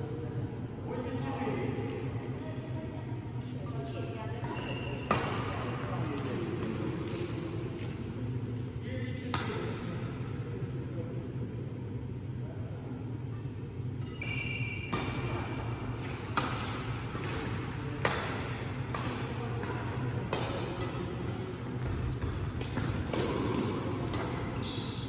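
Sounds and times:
sneakers squeaking on court floor: 0:04.4 - 0:06.0, 0:14.0 - 0:21.1, 0:21.7 - 0:25.0
racket hitting shuttlecock: 0:14.9 - 0:15.4, 0:16.0 - 0:21.2, 0:21.8 - 0:24.6.

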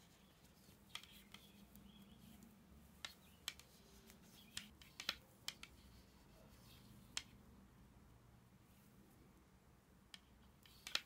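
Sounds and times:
knitting needles clicking: 0:00.0 - 0:06.0, 0:07.0 - 0:07.4, 0:10.0 - 0:11.0.

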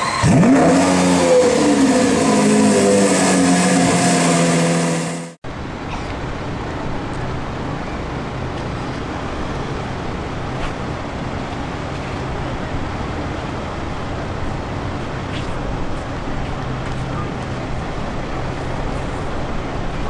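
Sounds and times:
high-revving car engine: 0:00.0 - 0:05.4
street traffic noise: 0:00.0 - 0:20.0.

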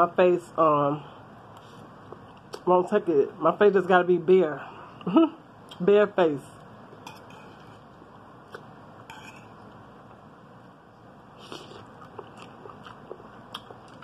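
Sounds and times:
fork scraping a plate: 0:07.0 - 0:07.9, 0:09.1 - 0:09.6.

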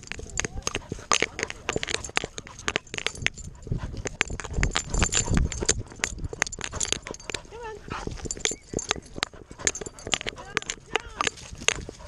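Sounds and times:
dog paws on dry leaves: 0:10.3 - 0:12.0.

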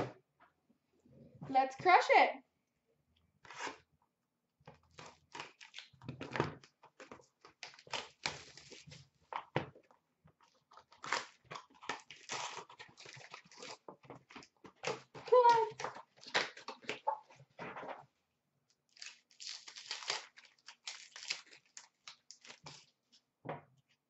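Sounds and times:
cardboard tearing and crinkling: 0:03.4 - 0:03.8, 0:04.9 - 0:09.5, 0:10.6 - 0:17.3, 0:18.9 - 0:23.0.

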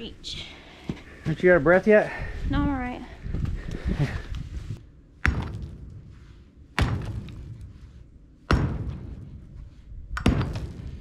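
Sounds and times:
sledgehammer hitting concrete block: 0:05.2 - 0:05.9, 0:06.8 - 0:07.6, 0:08.5 - 0:09.4, 0:10.2 - 0:11.0.

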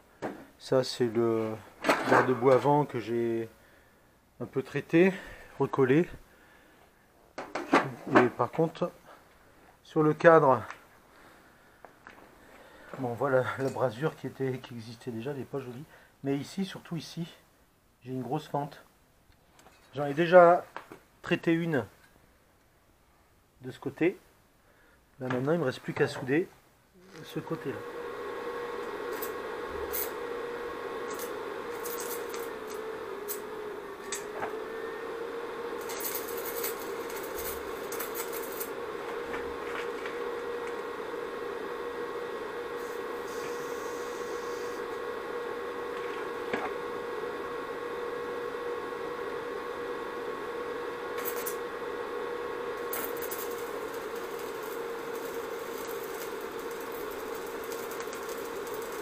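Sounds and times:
steady hum: 0:26.9 - 0:59.0
welding arc crackle and hiss: 0:27.0 - 0:59.0.

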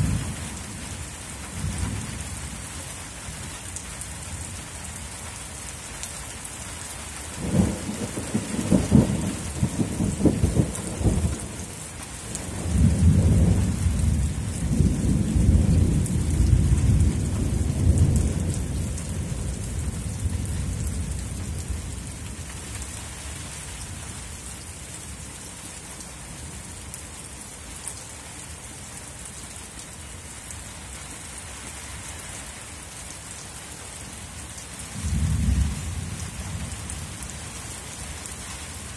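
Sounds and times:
steady rain falling: 0:00.0 - 0:38.9
thunder cracks and rumble: 0:07.4 - 0:22.2, 0:35.0 - 0:37.1.

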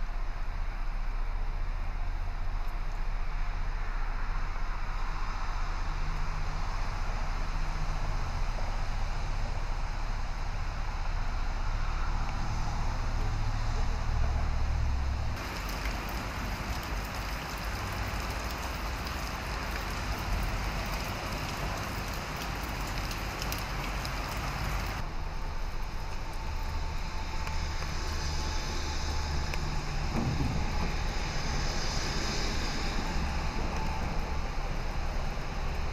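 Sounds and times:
low rumble: 0:11.2 - 0:35.9
rain on wet pavement: 0:15.4 - 0:35.9.

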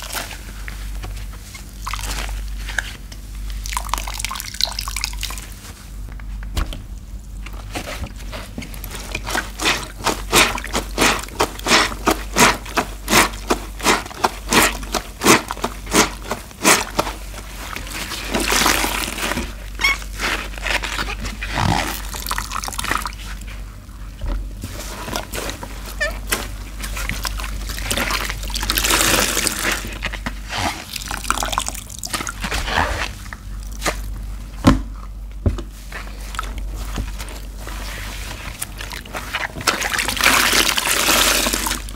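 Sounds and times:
wet sponges squelching: 0:00.0 - 0:05.9, 0:07.6 - 0:34.5, 0:35.7 - 0:41.9
water sloshing and streaming: 0:36.2 - 0:41.9.

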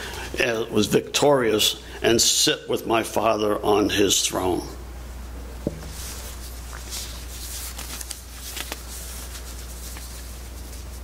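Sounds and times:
faint clicks and rustles: 0:05.8 - 0:11.0.

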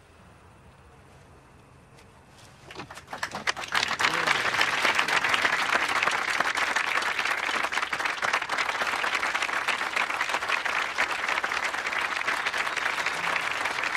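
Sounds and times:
crowd applauding: 0:02.9 - 0:13.9.

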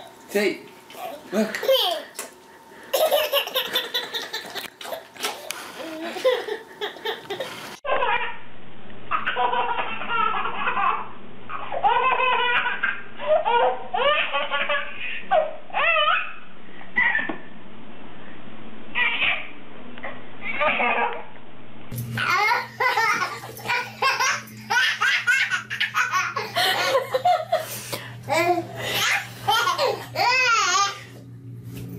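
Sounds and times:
baby laughing hard: 0:03.0 - 0:05.1, 0:05.9 - 0:08.4, 0:09.1 - 0:16.4, 0:19.0 - 0:19.5, 0:20.4 - 0:21.2, 0:22.2 - 0:27.6, 0:28.3 - 0:31.0.

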